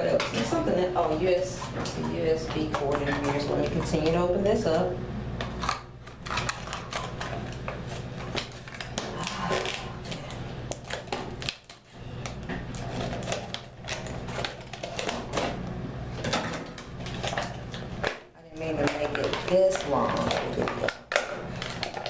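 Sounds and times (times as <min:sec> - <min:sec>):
plastic packaging crinkling: 0:05.5 - 0:15.6, 0:16.8 - 0:22.0.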